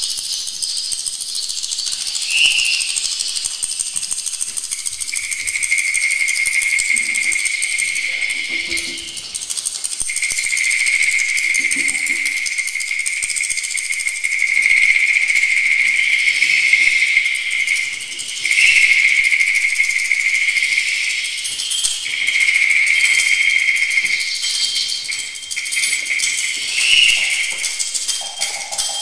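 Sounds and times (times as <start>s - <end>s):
shaker rattling: 0.0s - 29.0s
steady high tone: 22.8s - 29.0s.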